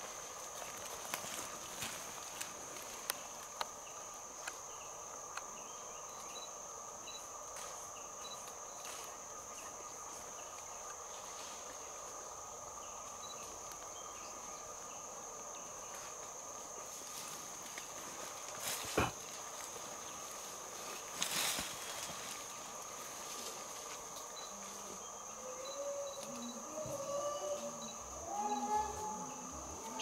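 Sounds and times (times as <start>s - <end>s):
high-pitched insect drone: 5.6s - 16.1s, 21.4s - 30.0s.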